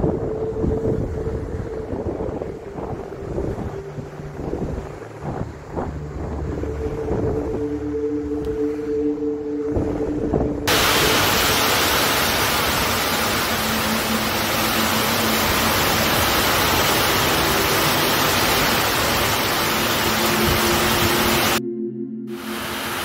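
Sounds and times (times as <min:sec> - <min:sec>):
heavy rain pouring: 0:10.6 - 0:21.6, 0:22.3 - 0:23.0.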